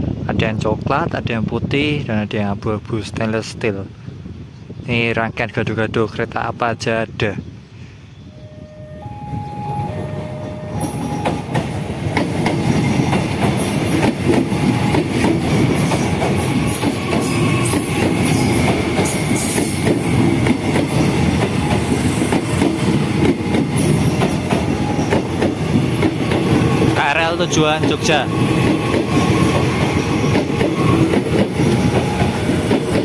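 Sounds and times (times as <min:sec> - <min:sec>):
electric train passing: 0:08.3 - 0:33.0
wheels clacking over rail joints: 0:11.1 - 0:33.0.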